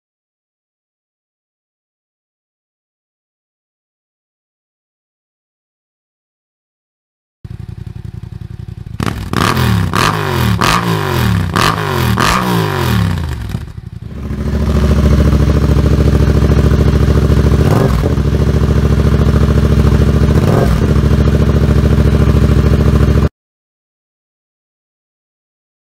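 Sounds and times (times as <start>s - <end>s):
motorcycle engine revving: 7.5s - 23.3s
motorcycle engine running steadily: 7.5s - 23.3s.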